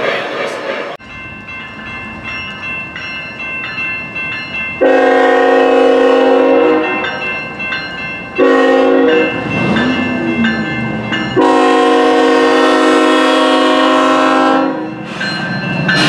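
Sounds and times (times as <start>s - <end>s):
train horn blast: 4.8s - 7.0s, 8.4s - 9.4s, 11.4s - 15.0s.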